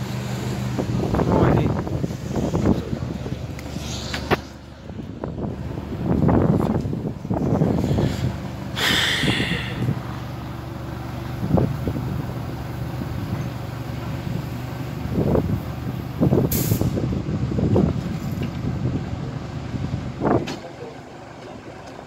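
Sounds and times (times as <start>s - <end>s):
locomotive engine humming: 0.0s - 22.0s
hiss of air: 7.8s - 10.0s, 16.5s - 17.0s.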